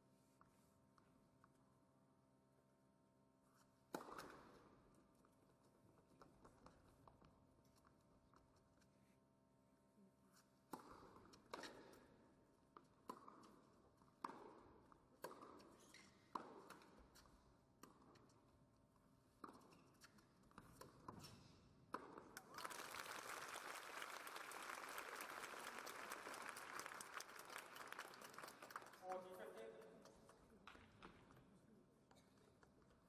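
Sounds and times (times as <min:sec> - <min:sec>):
tennis ball hit by racquets: 0:03.9 - 0:04.5, 0:10.7 - 0:12.0, 0:14.2 - 0:14.6, 0:15.2 - 0:17.0, 0:20.5 - 0:22.4
crowd applauding: 0:22.4 - 0:29.5.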